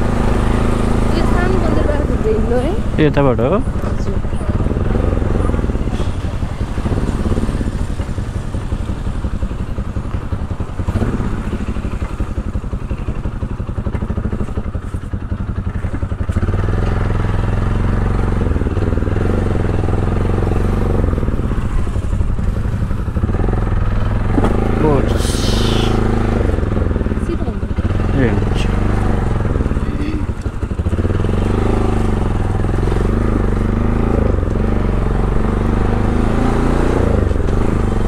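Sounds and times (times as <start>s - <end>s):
motorcycle engine running: 0.0s - 38.0s
road and wind noise: 0.0s - 38.0s.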